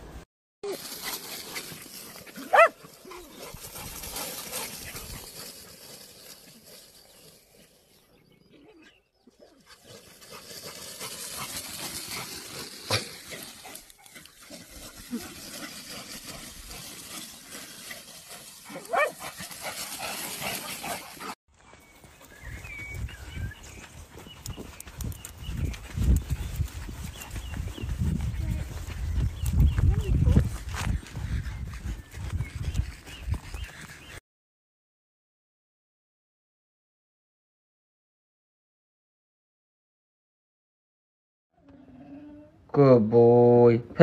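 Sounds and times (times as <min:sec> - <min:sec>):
dog yelping: 0:02.4 - 0:03.2, 0:18.7 - 0:19.1.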